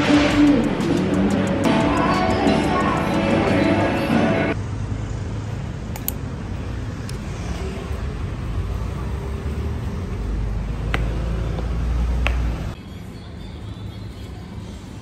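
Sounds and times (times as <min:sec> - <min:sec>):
low traffic rumble: 0:04.5 - 0:12.8.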